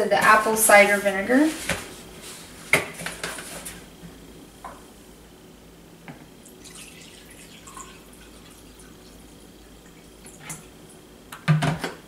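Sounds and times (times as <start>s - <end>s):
liquid splashing and trickling: 6.6s - 9.2s.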